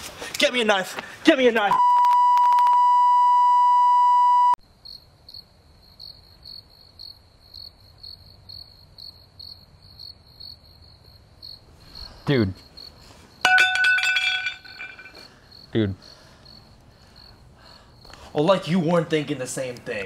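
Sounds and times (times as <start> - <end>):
crickets chirping: 4.6 - 19.8.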